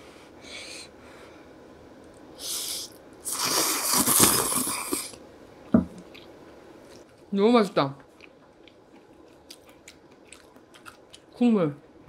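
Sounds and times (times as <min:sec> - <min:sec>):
person slurping noodles: 0:02.4 - 0:05.2.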